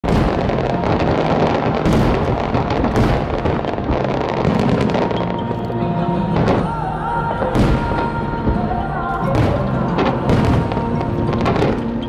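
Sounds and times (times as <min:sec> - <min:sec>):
sharp firework reports: 0:00.0 - 0:05.5
fireworks crackling and popping: 0:00.0 - 0:12.0.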